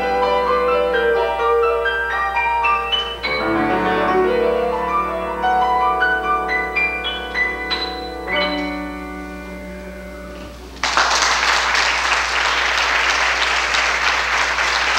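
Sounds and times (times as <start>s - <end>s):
piano chord ringing: 0.0s - 10.8s
audience applause: 10.8s - 14.9s.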